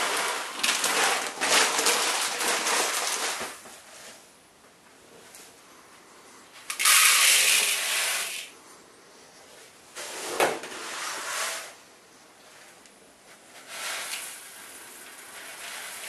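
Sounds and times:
grain pouring into plastic bowl: 0.0 - 3.6, 6.7 - 8.5, 13.6 - 16.0.

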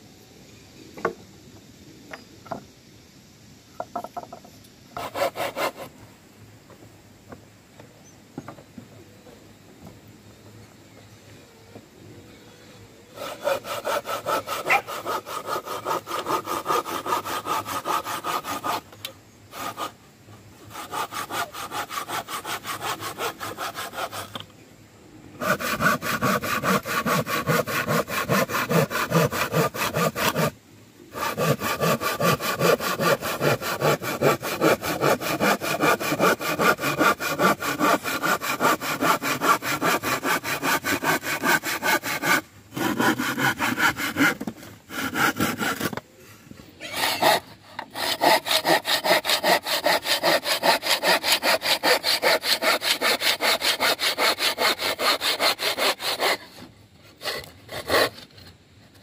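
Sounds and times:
hand saw cutting wood: 5.0 - 5.9, 13.1 - 20.0, 20.7 - 24.5, 25.4 - 46.1, 46.8 - 58.5.

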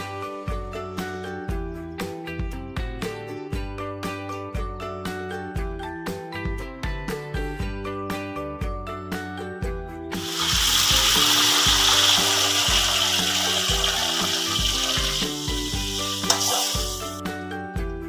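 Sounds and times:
background music with steady beat: 0.0 - 18.0
paste sizzling in hot oil: 10.2 - 17.2.

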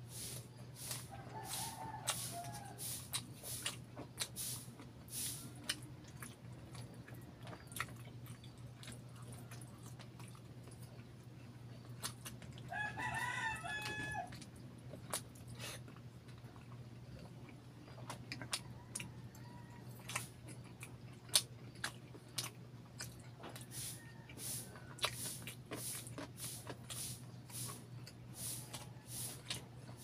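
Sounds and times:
wet chewing and lip-smacking: 0.4 - 12.7, 13.7 - 30.0
rooster crowing: 0.8 - 3.1, 12.6 - 14.4, 18.6 - 20.1, 23.4 - 25.4.

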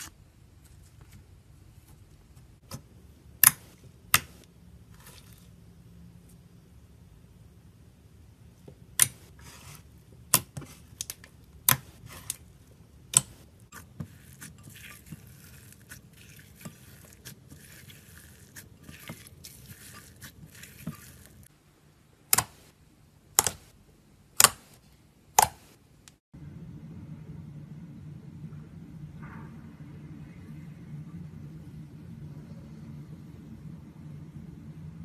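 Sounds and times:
fine crackling of slime: 13.6 - 21.5.

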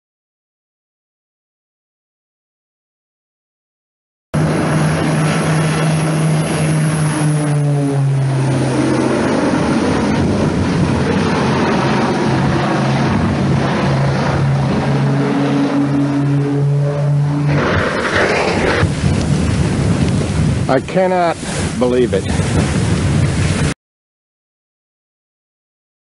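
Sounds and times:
propeller airplane droning overhead: 4.4 - 23.8.

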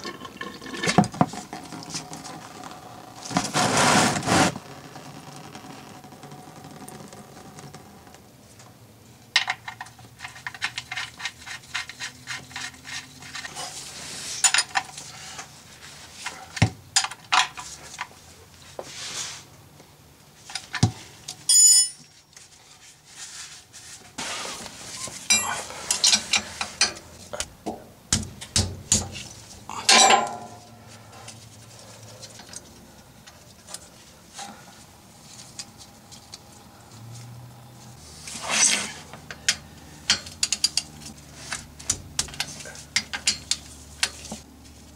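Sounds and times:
ringing metal clink: 21.5 - 22.1, 25.3 - 25.7
metal tools clinking: 21.5 - 22.3, 25.1 - 27.0, 29.8 - 30.8.

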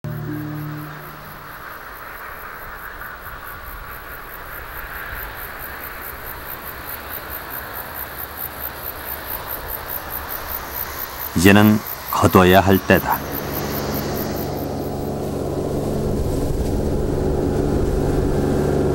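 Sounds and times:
insects chirping: 0.1 - 17.4
field ambience hiss: 11.4 - 13.2.

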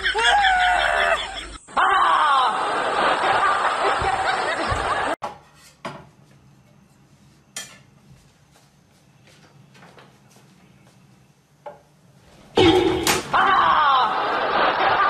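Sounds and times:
man crying out: 13.3 - 14.2.

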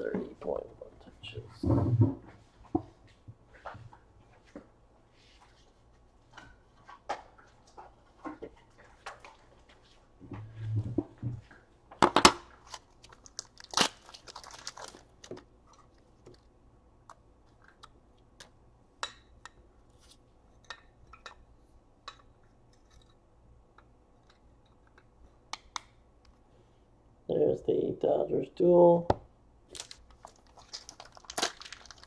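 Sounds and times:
plastic crinkling: 12.5 - 16.5, 29.7 - 32.0.

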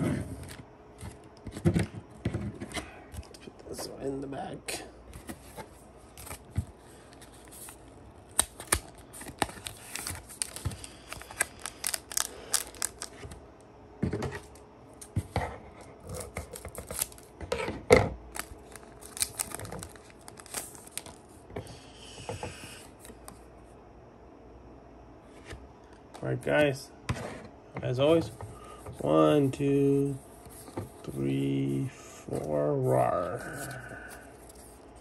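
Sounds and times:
cards rustling: 5.1 - 13.4, 16.1 - 17.3, 18.3 - 21.4
foil wrapper crinkling: 6.2 - 13.4, 16.1 - 17.3, 18.3 - 21.3.

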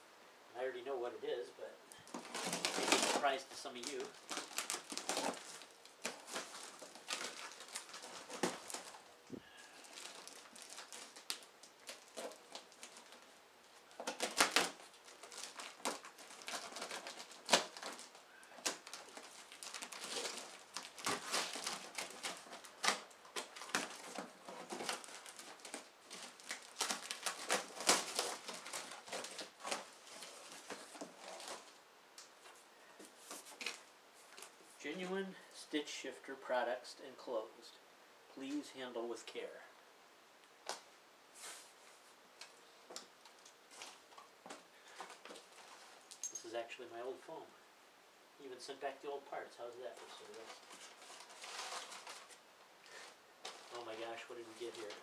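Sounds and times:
tape tearing: 2.0 - 32.6, 50.0 - 55.0
cardboard and packing crinkling: 2.0 - 35.2, 40.6 - 46.4, 49.6 - 55.0.

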